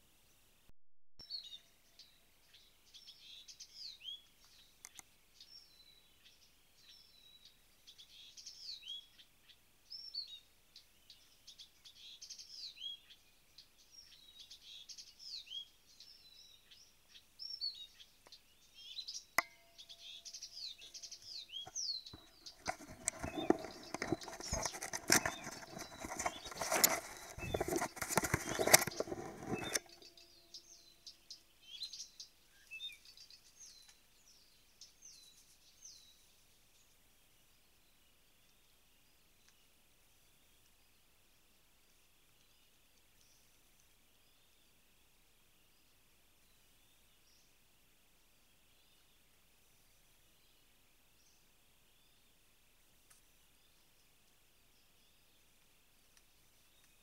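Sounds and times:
songbird singing whistled notes: 1.2 - 41.1.

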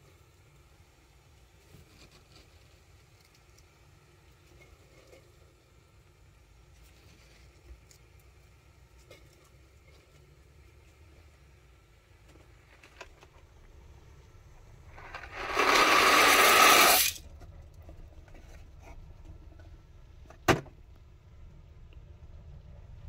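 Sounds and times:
dry pasta pouring into pot: 14.8 - 17.2.

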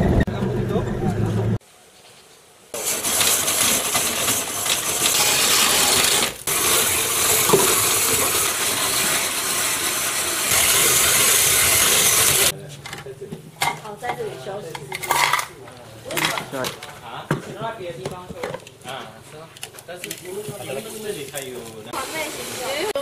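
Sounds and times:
ice shaving machine rasping: 2.8 - 12.5.

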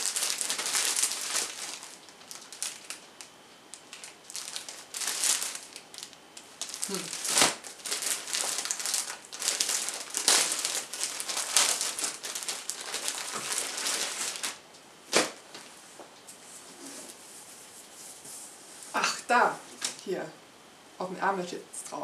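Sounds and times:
plastic bag crinkling: 0.0 - 15.7.

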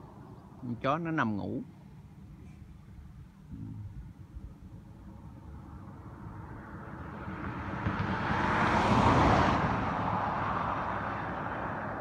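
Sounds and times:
car driving past: 5.6 - 12.0.

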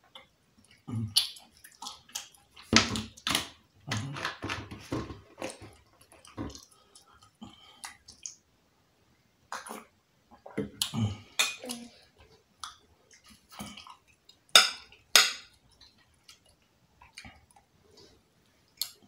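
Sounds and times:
mouth chewing food: 0.1 - 3.2, 9.5 - 18.1.

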